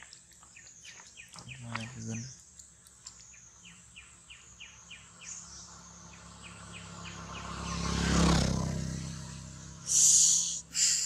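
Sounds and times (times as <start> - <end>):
vehicle passing: 3.5 - 11.0.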